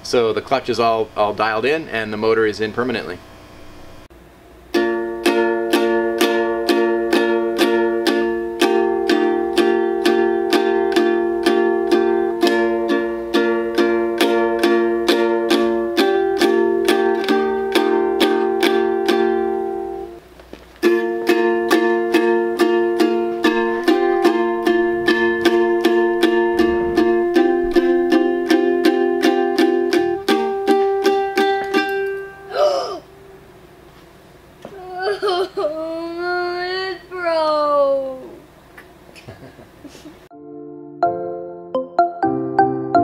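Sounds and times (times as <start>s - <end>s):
ukulele strumming chords: 4.7s - 33.9s.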